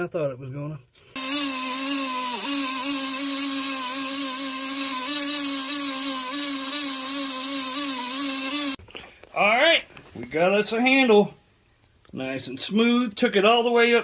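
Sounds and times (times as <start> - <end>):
belt grinder whining: 1.2 - 8.8.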